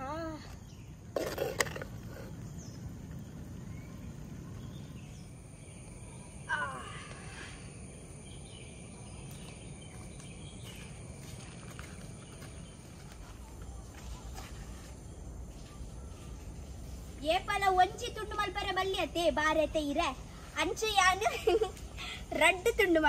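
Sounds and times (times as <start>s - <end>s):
high insect drone: 0.0s - 13.3s.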